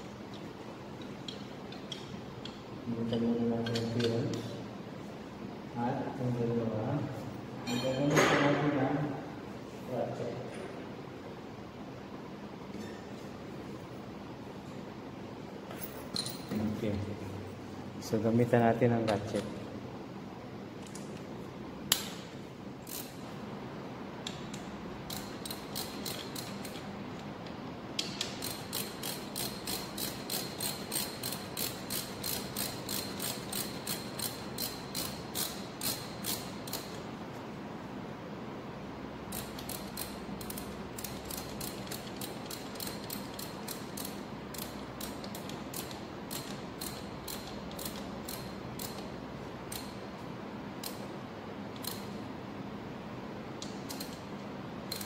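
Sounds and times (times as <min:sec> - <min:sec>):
ratchet wrench clicking: 0:22.8 - 0:23.2, 0:24.2 - 0:26.9, 0:28.0 - 0:37.0, 0:39.3 - 0:50.0, 0:50.8 - 0:51.0, 0:51.7 - 0:52.2, 0:53.7 - 0:54.3.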